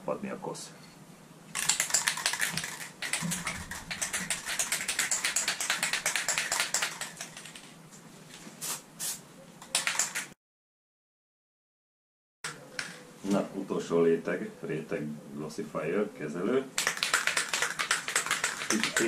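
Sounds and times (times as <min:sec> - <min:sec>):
spray can shaken rattling: 0:01.5 - 0:07.8, 0:08.6 - 0:10.4, 0:16.8 - 0:19.0.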